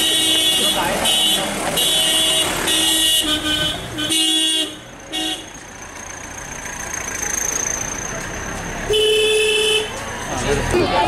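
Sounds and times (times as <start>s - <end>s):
vehicle horns tooting: 0.0s - 5.6s, 8.8s - 10.0s
traffic noise: 0.0s - 11.0s
vehicles driving past: 0.0s - 11.0s.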